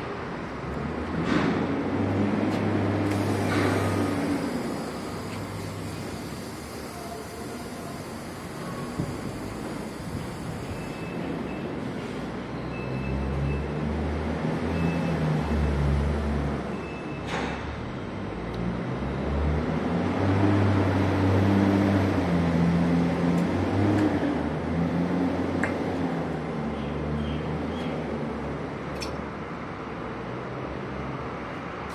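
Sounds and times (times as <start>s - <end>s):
large engine running: 1.9s - 11.6s
sharp short hiss or click: 3.0s - 11.1s
steady hiss: 3.0s - 11.5s.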